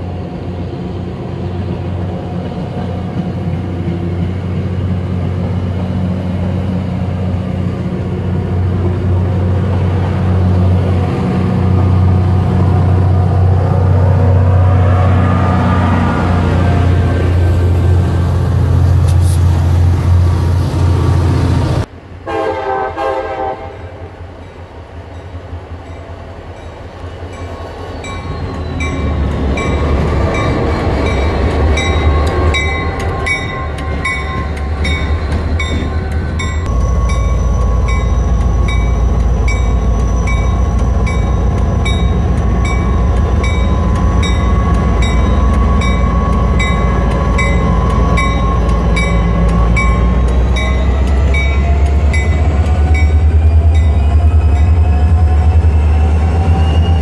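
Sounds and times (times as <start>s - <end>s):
locomotive engine rumble: 25.9s - 57.0s.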